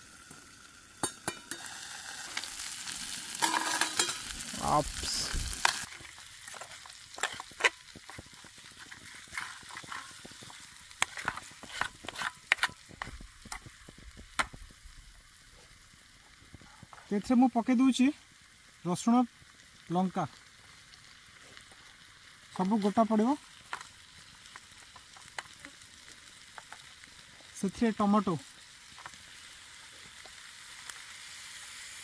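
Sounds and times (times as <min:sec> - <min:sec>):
chicken sizzling in frying pan: 0:00.0 - 0:32.0
fork scraping a pan: 0:03.4 - 0:04.3, 0:08.8 - 0:13.6.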